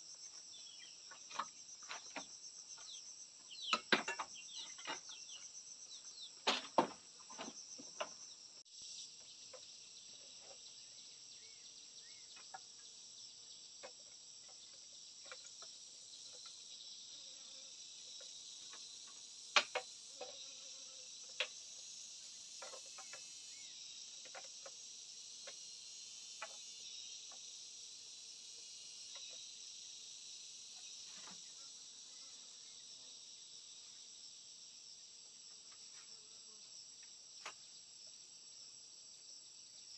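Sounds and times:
insects droning: 0.0 - 39.9
bamboo and wood knocks: 3.7 - 5.1, 6.4 - 8.2, 19.5 - 20.3.

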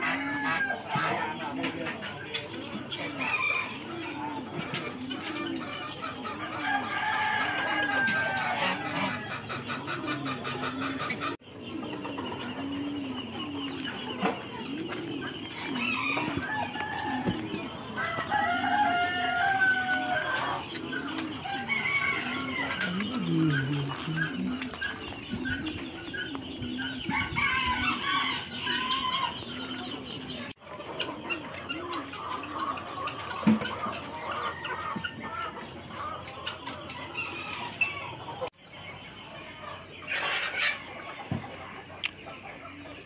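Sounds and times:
hens clucking: 0.0 - 43.0
rooster crowing: 6.6 - 8.6, 15.7 - 17.4, 18.0 - 20.6, 21.4 - 23.0.

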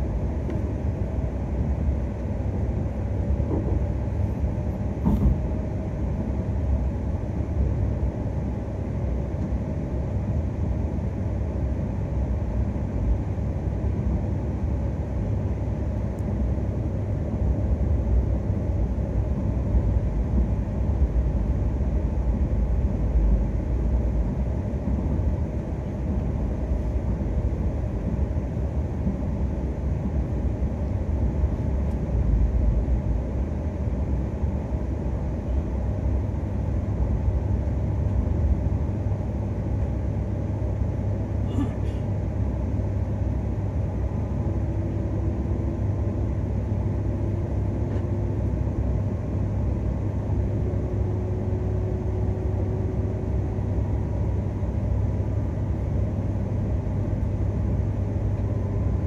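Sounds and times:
train rumble inside cabin: 0.0 - 59.0.

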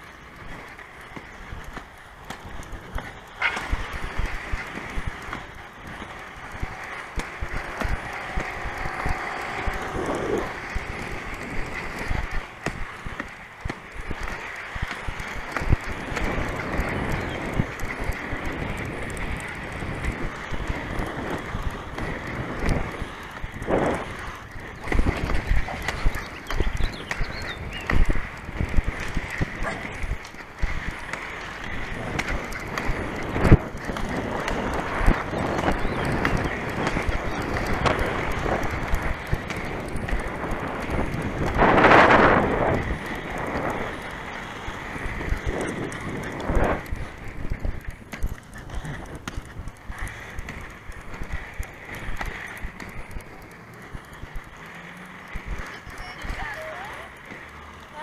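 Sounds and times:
faint clicks: 0.0 - 58.0
skate wheels rolling on asphalt: 0.0 - 58.0
wind buffeting microphone: 0.0 - 58.0.

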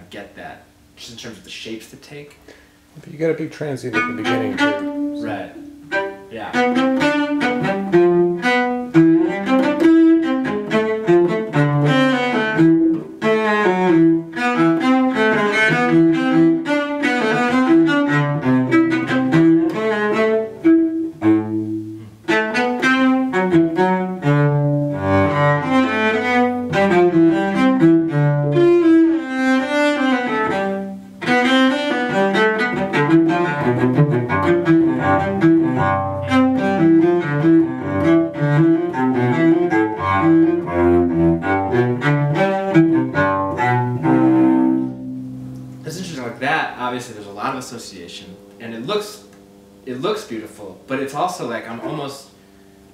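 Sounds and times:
bowed cello: 3.1 - 46.9.

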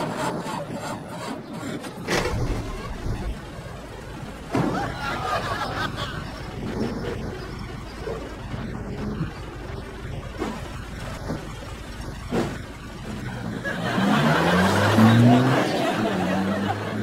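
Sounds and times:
studio audience laughter: 4.6 - 6.6, 13.5 - 17.0
vehicle engine idling: 5.9 - 17.0.

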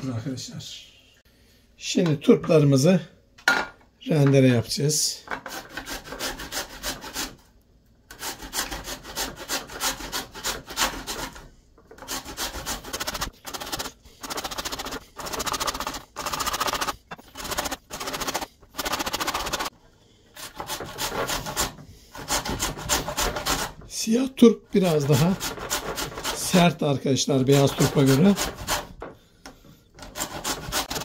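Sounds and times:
radish grated on metal grater: 8.1 - 19.7, 24.8 - 26.7, 27.5 - 29.0, 30.0 - 31.0.

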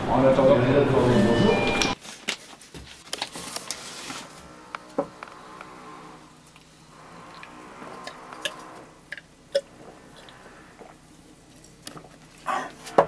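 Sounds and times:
man gulping and swallowing: 8.4 - 13.0.

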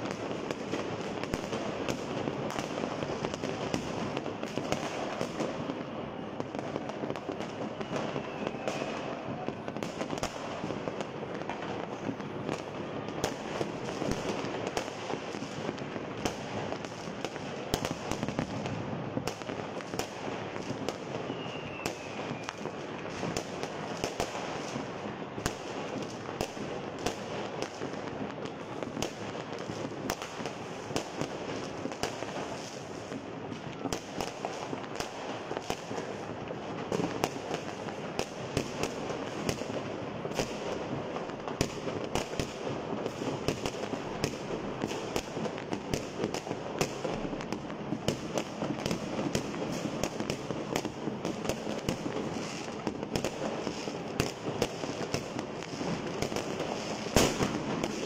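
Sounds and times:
fireworks bangs and crackling: 0.0 - 58.0.

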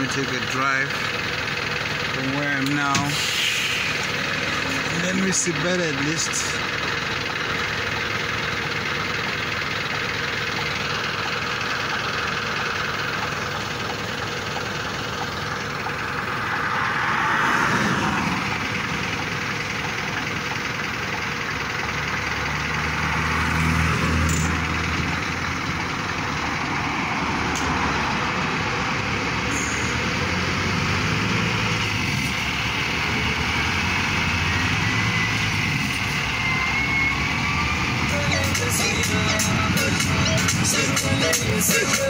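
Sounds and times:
engine idling: 0.0 - 42.0
heavy vehicle deep engine passing: 0.0 - 42.0
vehicle passing: 16.0 - 18.9.

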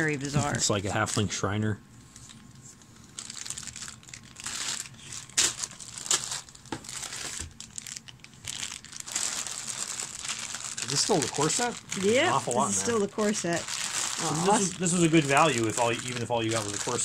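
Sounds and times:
plastic bag crinkling: 0.0 - 1.4, 2.2 - 17.0.

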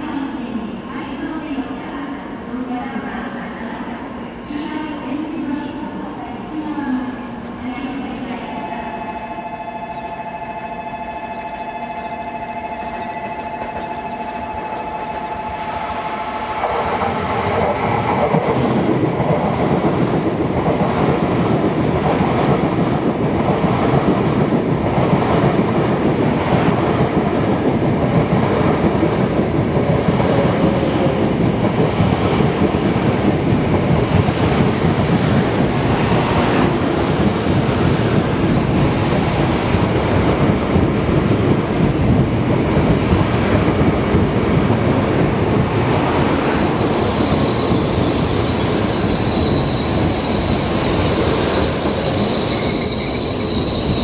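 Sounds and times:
train wheels rumbling on rails: 4.5 - 54.0
wheel squeal: 46.9 - 54.0.

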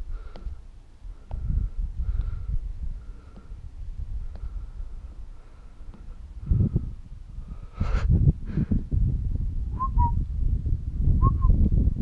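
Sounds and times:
wind buffeting microphone: 0.0 - 12.0
short whistled notes: 9.8 - 10.2.

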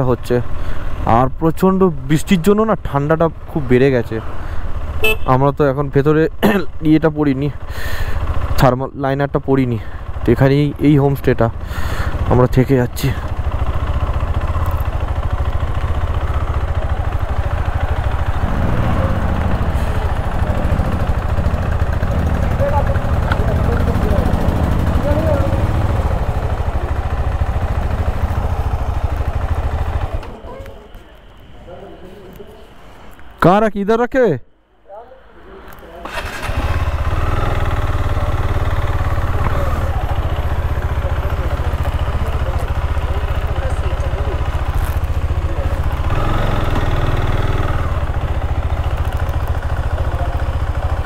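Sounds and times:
motorcycle engine low throb: 9.8 - 30.4, 36.9 - 51.0.

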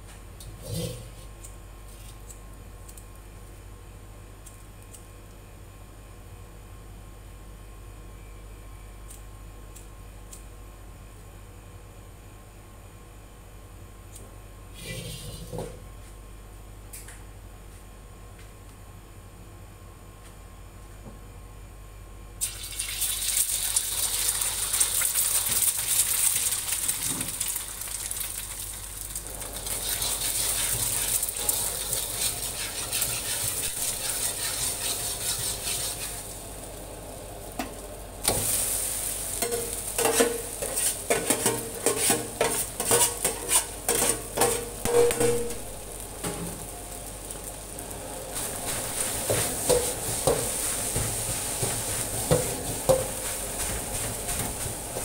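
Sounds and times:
eggs sizzling in hot oil: 22.4 - 55.0
metal ladle scraping a wok: 29.8 - 36.3, 40.0 - 45.5.

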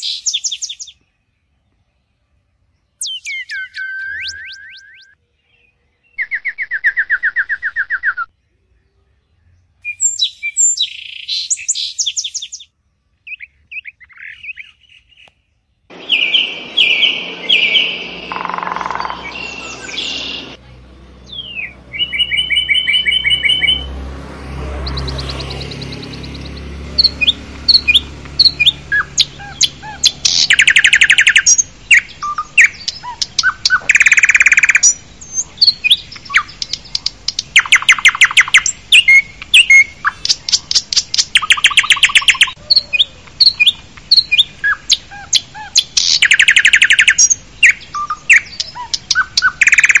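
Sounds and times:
bird chirps: 0.0 - 20.6, 21.2 - 50.0
rapid bird trills: 15.9 - 20.6, 25.0 - 50.0.

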